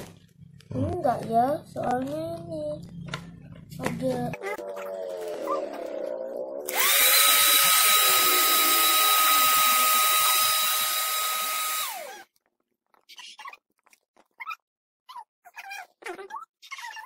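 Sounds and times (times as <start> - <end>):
electric air pump motor whine: 4.9 - 12.3.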